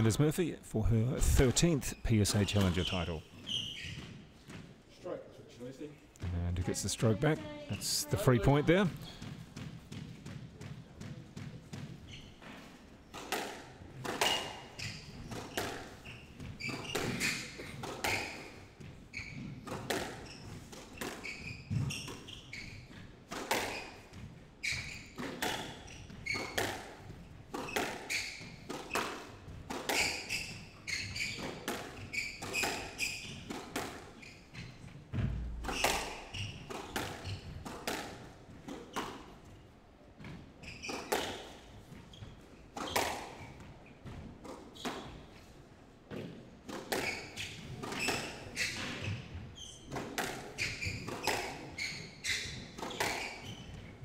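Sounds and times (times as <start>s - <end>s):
shoes squeaking on wooden floor: 1.2s - 54.0s
squash ball knocking: 34.8s - 39.2s.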